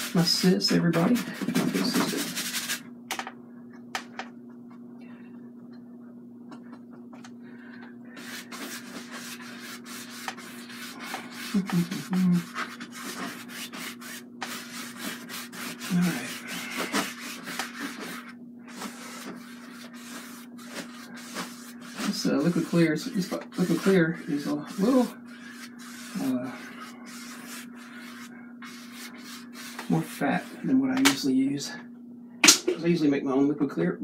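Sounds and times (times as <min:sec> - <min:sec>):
brush strokes on canvas: 0:08.2 - 0:30.6.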